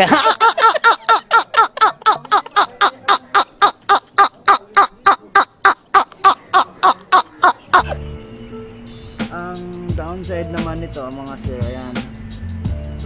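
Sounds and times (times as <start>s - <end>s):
man laughing: 0.0s - 5.5s.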